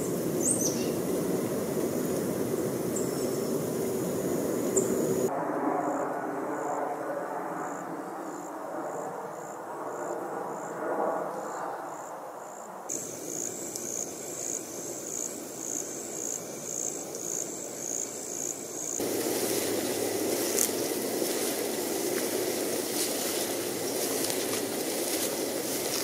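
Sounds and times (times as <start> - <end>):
insect chirping: 0.0 - 5.3, 11.5 - 26.0
distant traffic hum: 0.0 - 8.6, 12.9 - 26.0.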